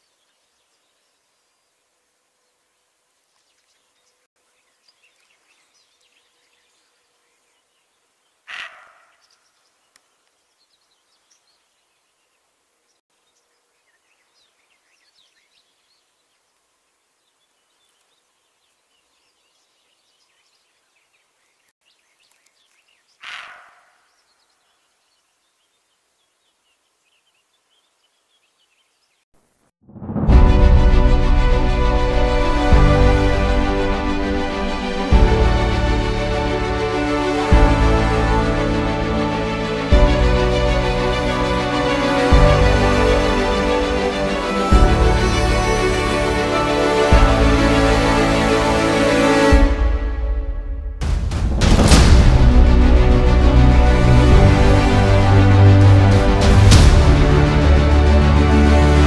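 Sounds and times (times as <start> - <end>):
faint birdsong chirps: 0.0 - 29.7
deer alarm barks: 8.5 - 9.2, 23.2 - 24.1.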